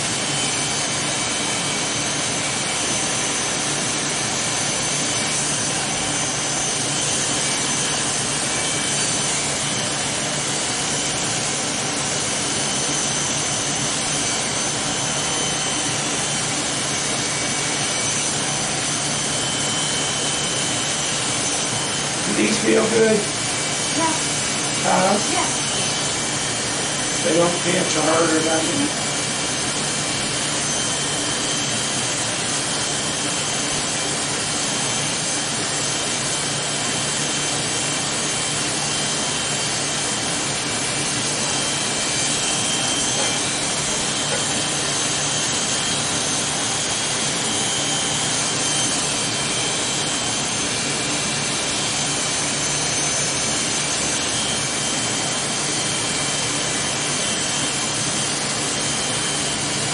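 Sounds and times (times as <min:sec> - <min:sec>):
electric hair clippers cutting hair: 0:04.5 - 0:35.2, 0:37.4 - 0:52.1.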